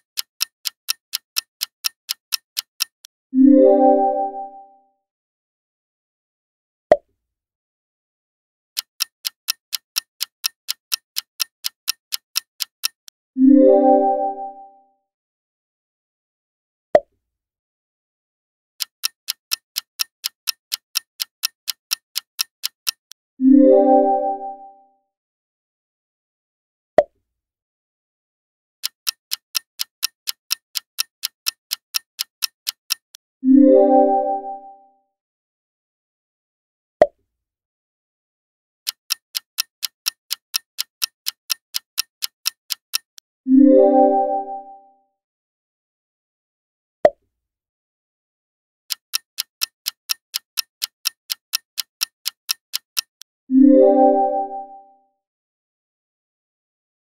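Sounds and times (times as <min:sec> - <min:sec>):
countdown timer ticking: 0:00.0 - 0:03.1, 0:08.8 - 0:13.6, 0:18.8 - 0:23.2, 0:28.8 - 0:34.0, 0:38.9 - 0:43.2, 0:48.9 - 0:54.7
sharp click: 0:28.8 - 0:33.2, 0:38.9 - 0:43.3, 0:48.9 - 0:53.3.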